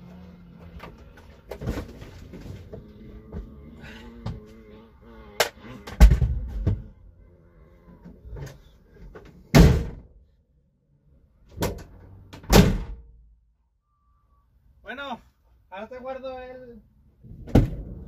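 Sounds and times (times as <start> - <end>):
van doors slamming: 5.9 - 6.9, 9.5 - 10.1, 11.6 - 13.0.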